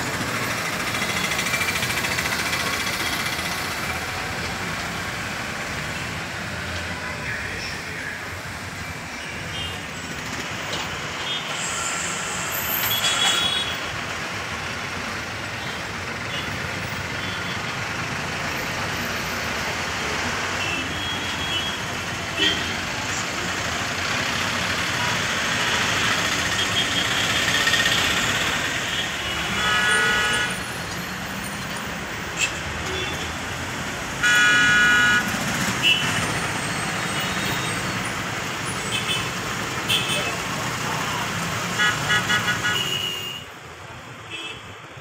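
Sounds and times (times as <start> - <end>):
road traffic noise: 0.0 - 45.0
vehicle horn toots: 34.2 - 36.1, 41.8 - 43.4.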